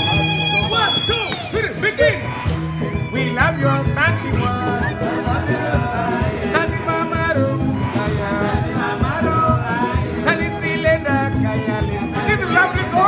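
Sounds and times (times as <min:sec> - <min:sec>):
background music with shaker beat: 0:00.0 - 0:13.0.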